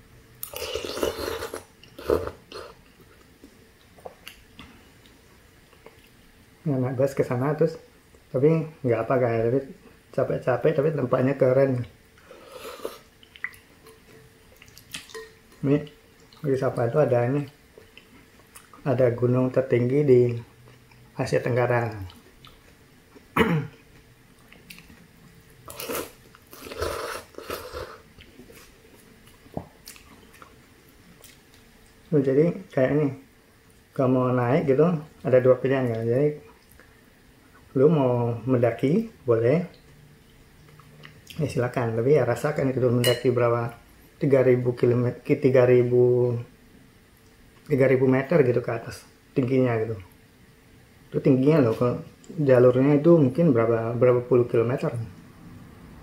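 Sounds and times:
soft chewing: 0.4s - 6.3s, 11.7s - 18.9s, 21.8s - 32.8s, 33.5s - 34.0s, 35.0s - 37.7s, 39.7s - 41.4s
person slurping noodles: 0.5s - 2.8s, 12.3s - 13.1s, 25.7s - 28.0s
chewing with mouth clicks: 12.7s - 15.2s, 21.9s - 32.1s, 39.7s - 41.4s.

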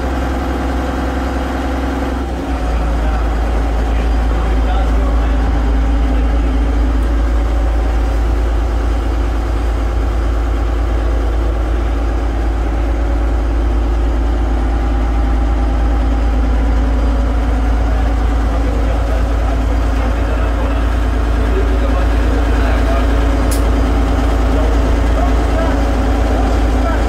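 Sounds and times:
boat diesel engine drone: 0.0s - 27.0s.

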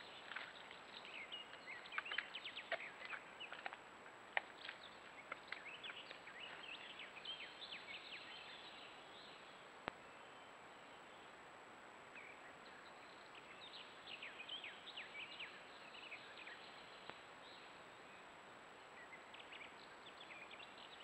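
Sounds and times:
small birds chirping: 0.0s - 3.8s, 4.4s - 10.5s.

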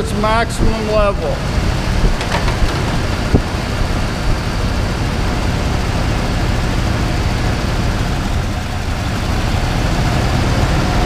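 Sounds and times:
car engine idling: 0.1s - 11.0s.

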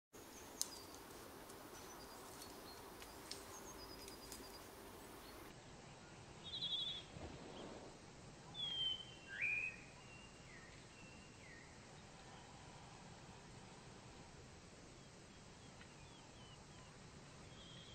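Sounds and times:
birds calling: 0.2s - 5.5s.

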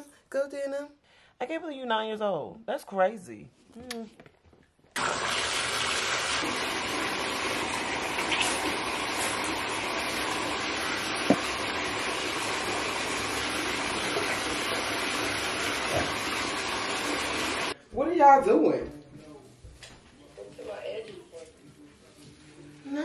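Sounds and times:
water running into bathtub: 5.0s - 17.8s.

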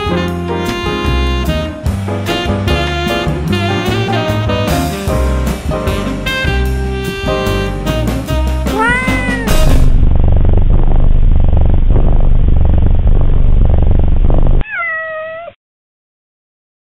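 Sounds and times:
jazz music with saxophone: 0.0s - 10.0s
cat meowing: 8.7s - 9.7s, 14.6s - 15.6s
loud low rumble: 8.8s - 14.6s.

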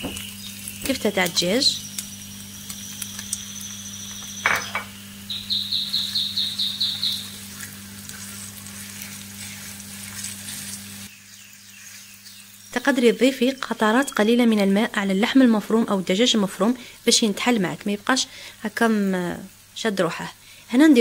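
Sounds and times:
high chirps: 0.0s - 7.6s
food sizzling in a frying pan: 0.0s - 20.0s
spatula stirring and scraping: 7.1s - 11.1s.

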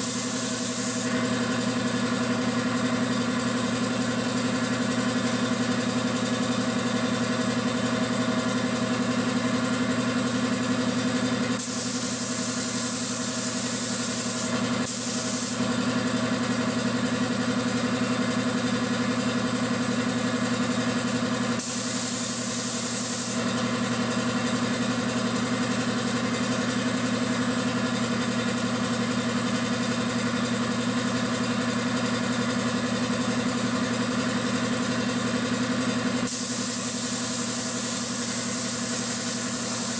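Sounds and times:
spray gun hissing: 0.0s - 1.1s, 11.6s - 15.6s, 21.6s - 23.4s, 36.3s - 39.9s
air compressor motor humming: 0.0s - 39.9s.

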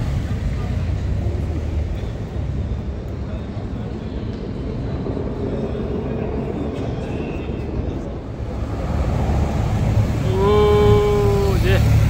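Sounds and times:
rumble of street traffic: 0.0s - 12.0s
motorcycles approaching: 4.4s - 12.0s.

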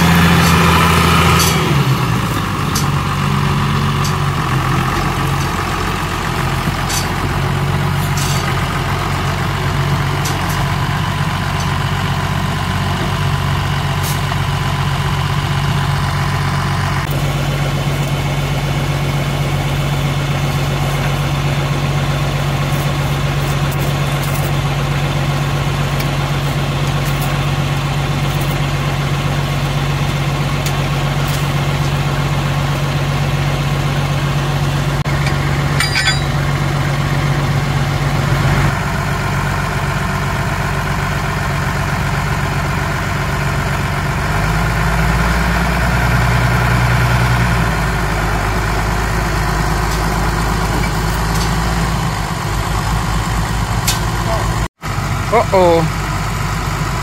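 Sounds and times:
diesel engine idling: 0.0s - 57.0s.

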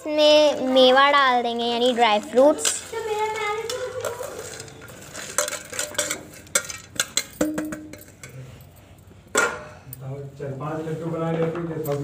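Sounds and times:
steel dishes clinking: 3.4s - 8.6s.

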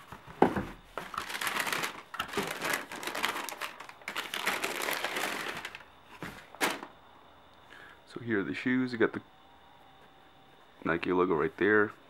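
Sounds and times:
tissue paper crinkling: 1.0s - 6.9s.

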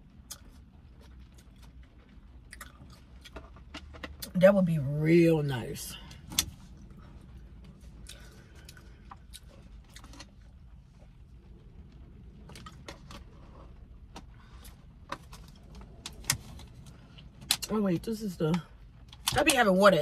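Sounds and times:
car cabin low hum: 0.0s - 20.0s.

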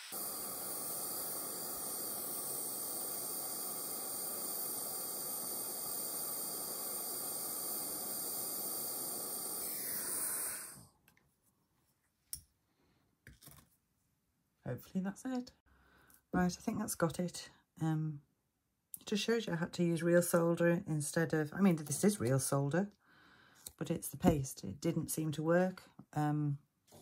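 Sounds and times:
gas torch hissing: 0.0s - 10.9s.

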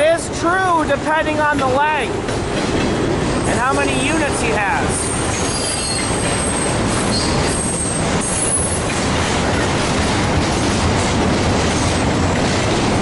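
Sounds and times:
train wheels rumbling on rails: 0.0s - 13.0s
high wheel squeals: 5.1s - 8.8s.

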